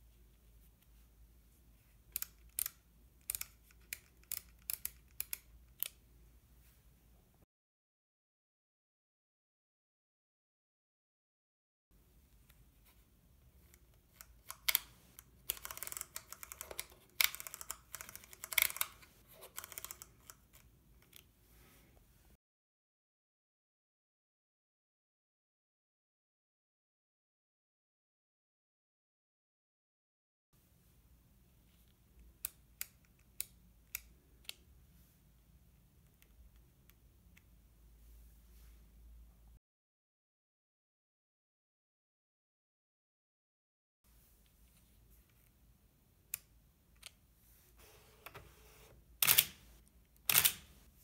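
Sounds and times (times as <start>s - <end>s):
camera buttons and dial clicking: 50.3s - 50.7s.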